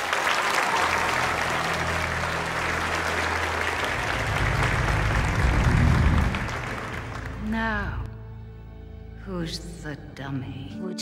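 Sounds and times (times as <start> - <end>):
audience applauding: 0.0 - 7.6
low steady drone: 1.8 - 9.5.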